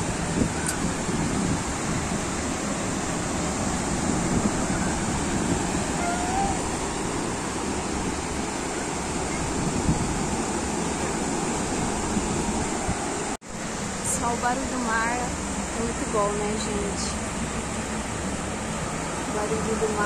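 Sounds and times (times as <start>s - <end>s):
surf washing onto beach: 0.0s - 20.0s.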